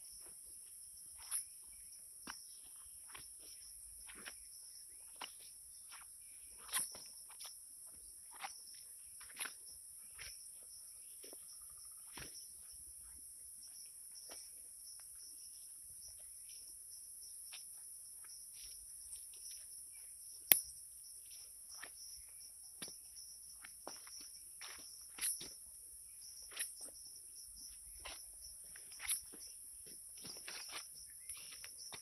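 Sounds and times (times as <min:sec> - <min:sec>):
insects chirring: 0:00.0 - 0:32.0
sharp click: 0:20.5 - 0:20.7
soft footsteps: 0:26.2 - 0:32.0.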